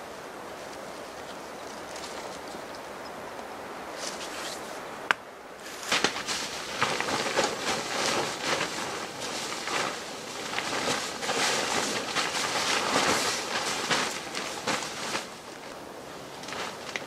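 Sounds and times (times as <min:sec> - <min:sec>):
fabric and bags rustling: 0:05.6 - 0:17.0.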